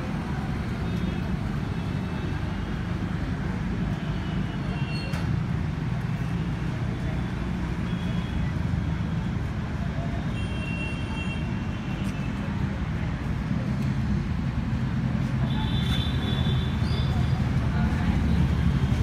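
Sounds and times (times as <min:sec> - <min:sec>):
low rumble of road traffic: 0:00.0 - 0:19.0.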